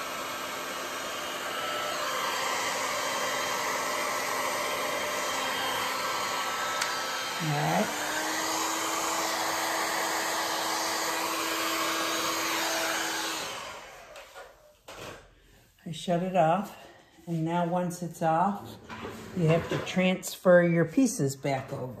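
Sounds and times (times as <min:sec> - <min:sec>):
heat gun blowing air: 0:00.0 - 0:14.7.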